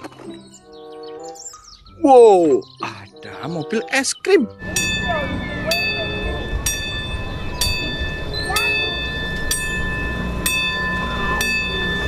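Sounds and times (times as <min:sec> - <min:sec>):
ice cream truck chime: 0:00.5 - 0:12.0
truck engine rumble: 0:04.6 - 0:12.0.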